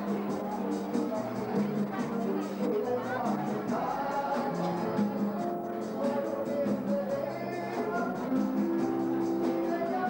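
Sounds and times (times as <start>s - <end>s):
regular percussion beat: 0.0s - 10.0s
held melody notes: 8.1s - 10.0s.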